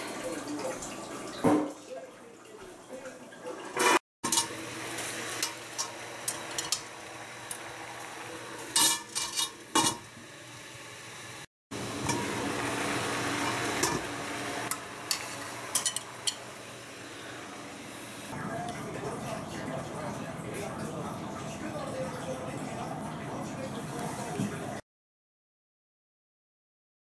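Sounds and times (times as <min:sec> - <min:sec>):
metal lid and plate clanking: 0:03.8 - 0:04.6, 0:08.6 - 0:10.1, 0:13.4 - 0:14.1, 0:14.7 - 0:16.5
water boiling hiss: 0:10.0 - 0:18.4.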